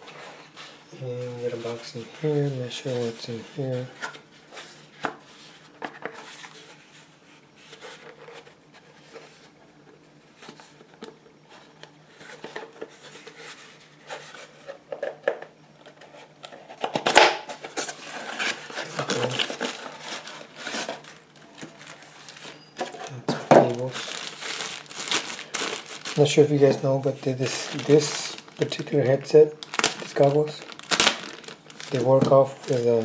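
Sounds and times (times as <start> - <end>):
cardboard packaging rustling: 15.9 - 33.0.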